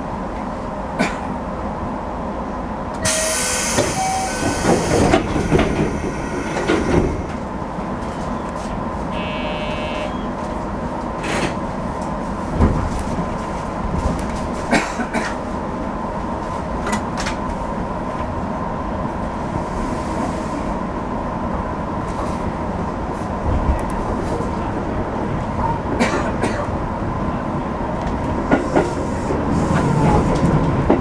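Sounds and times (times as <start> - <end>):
train cab hum with whine: 0.0 - 31.0
brief electronic tone: 3.1 - 4.5, 9.1 - 10.4.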